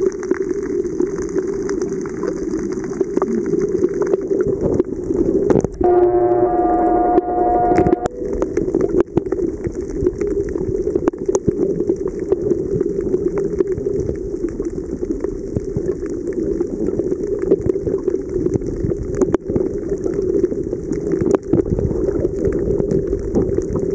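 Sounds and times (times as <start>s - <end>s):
muffled underwater rushing: 0.0s - 23.9s.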